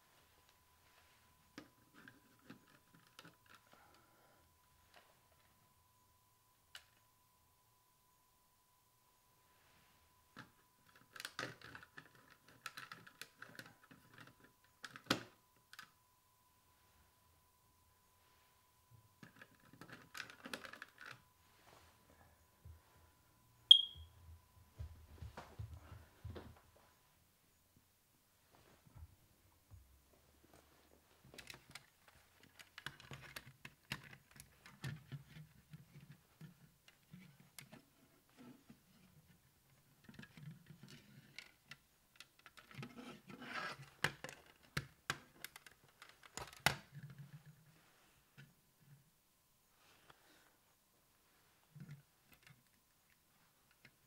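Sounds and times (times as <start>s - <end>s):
plastic clicking and scraping: 1.6s - 4.0s, 10.4s - 15.9s, 19.2s - 21.3s, 31.3s - 47.7s
smoke alarm beep: 23.6s - 24.2s
sharp plastic snaps: 44.0s - 47.0s.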